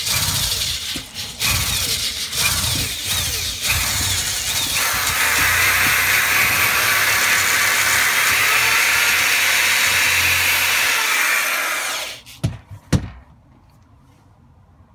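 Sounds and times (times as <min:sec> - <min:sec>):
power drill sanding wood: 0:00.0 - 0:12.4
drill knocking on bench: 0:02.4 - 0:11.2.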